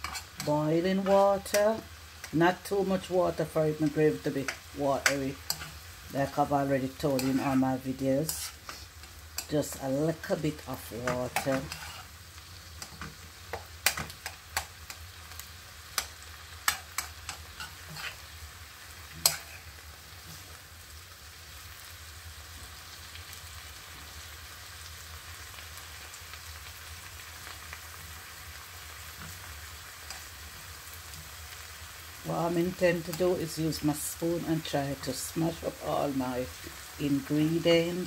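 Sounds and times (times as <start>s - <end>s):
metal spoon scraping pan: 0.0s - 1.7s, 4.4s - 13.2s, 16.0s - 18.4s, 19.1s - 20.6s
vegetables sizzling in pan: 0.0s - 38.0s.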